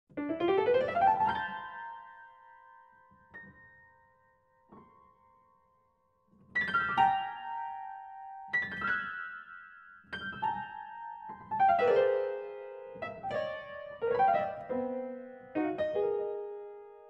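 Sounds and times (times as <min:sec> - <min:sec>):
piano notes ringing: 0:00.2 - 0:02.6, 0:06.7 - 0:17.0.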